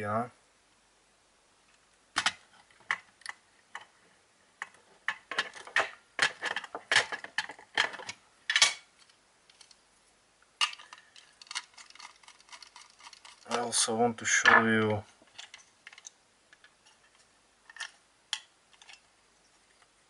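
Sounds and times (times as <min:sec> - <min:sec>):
plastic case clicking and knocking: 0:04.6 - 0:08.6.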